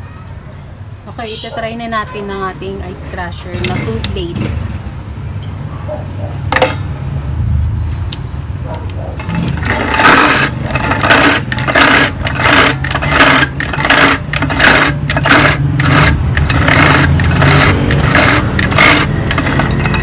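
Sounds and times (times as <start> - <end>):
ice crusher motor humming: 9.2 - 20.0
blades crunching ice: 9.6 - 20.0.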